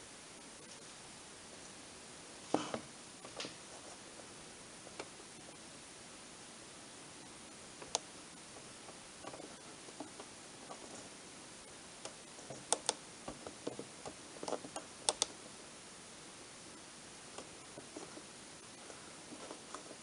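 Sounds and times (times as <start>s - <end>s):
faint steady hiss: 0.0s - 20.0s
push buttons clicking: 12.0s - 13.0s, 13.6s - 15.3s.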